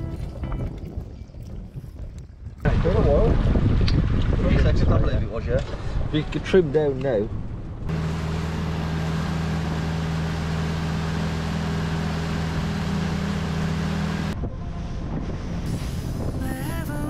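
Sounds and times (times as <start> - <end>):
music: 0.0 - 0.6, 15.7 - 17.0
motorboat engine running: 0.0 - 1.7, 7.8 - 14.9
wind rushing: 0.7 - 6.4, 14.4 - 16.9.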